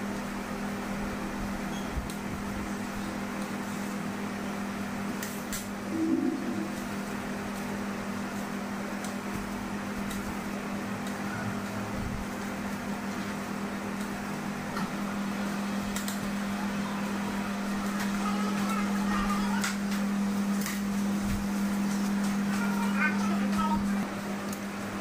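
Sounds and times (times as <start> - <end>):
machine hum: 0.0 - 25.0
fan-like whoosh: 5.8 - 7.4.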